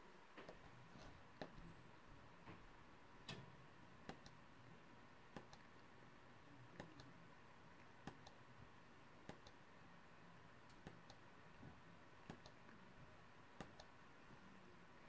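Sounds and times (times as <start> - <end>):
faint sharp clicks: 13.6 - 13.9.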